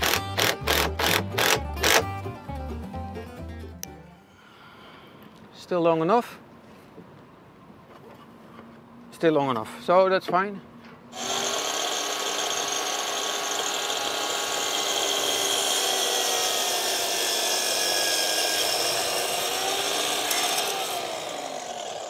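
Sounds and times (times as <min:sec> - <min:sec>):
mitre saw cutting wood: 0:00.0 - 0:02.1, 0:11.2 - 0:22.0.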